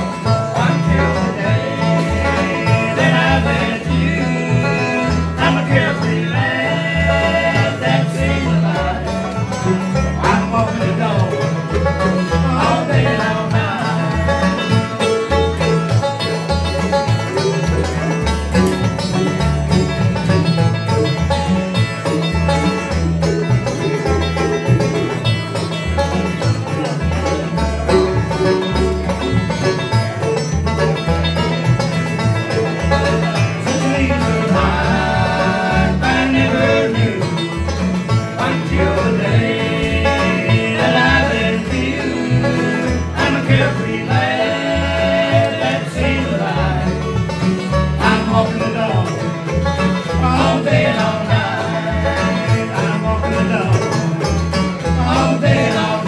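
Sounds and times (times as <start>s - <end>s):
bluegrass band playing: 0.0s - 56.0s
upright bass: 0.0s - 56.0s
people singing together: 0.5s - 9.6s, 12.2s - 15.0s, 33.4s - 49.2s, 50.0s - 53.7s, 54.8s - 56.0s.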